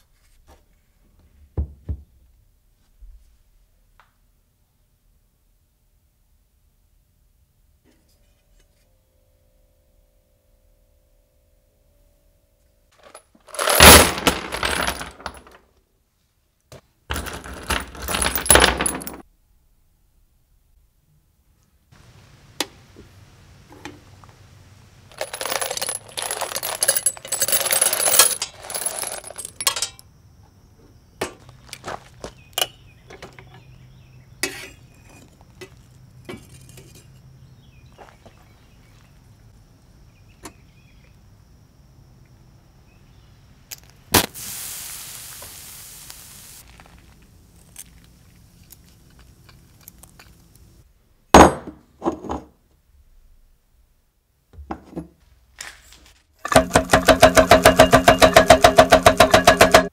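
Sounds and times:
metal casings clattering: 13.0 - 15.6, 17.1 - 19.2, 25.1 - 30.1, 56.4 - 59.9
metallic clicks and knocks: 25.2 - 30.0, 56.4 - 59.9
sharp crack: 43.7 - 44.5
short hiss: 44.1 - 46.7.

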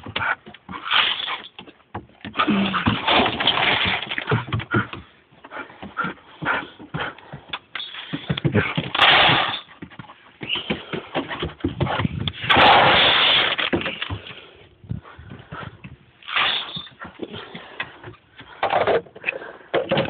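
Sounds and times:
knocks and clatter of handling: 16.8 - 20.0.

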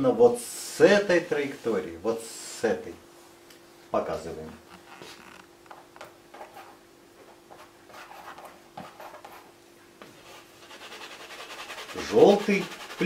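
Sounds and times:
palette knife scraping paint: 10.2 - 13.0.

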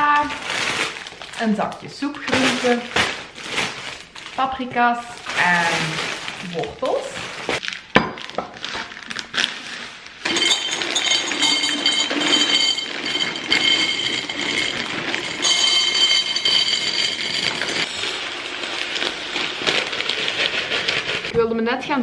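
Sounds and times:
dry pasta rattling into glass jars: 10.2 - 21.3.

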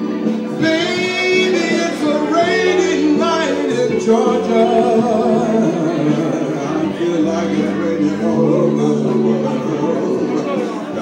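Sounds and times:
backing music: 0.0 - 11.0
man singing: 0.0 - 11.0.

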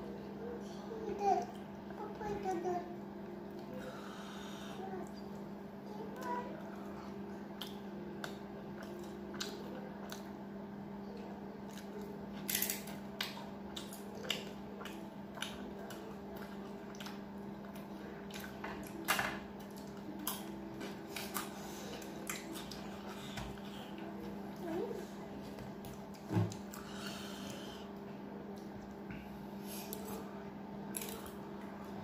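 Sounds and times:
steady low hum: 0.0 - 32.0
person chewing: 11.7 - 19.0.

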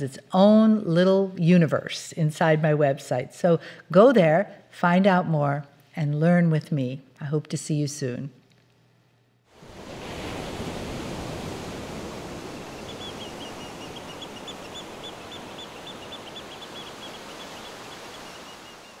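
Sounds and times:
ocean waves rushing: 9.5 - 19.0
bird chirping: 12.8 - 19.0.

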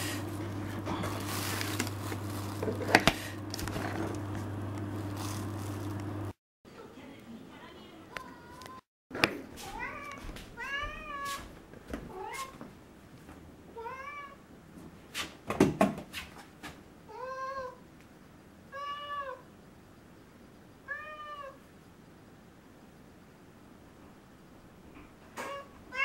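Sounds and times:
cat meowing: 9.6 - 11.4, 18.7 - 19.4, 20.9 - 21.6, 25.4 - 26.0.

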